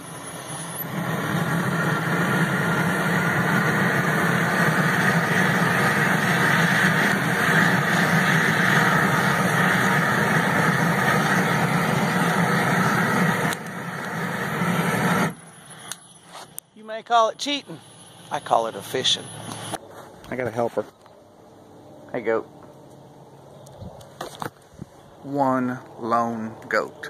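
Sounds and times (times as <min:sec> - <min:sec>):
electric blower whirring: 0:00.0 - 0:16.0.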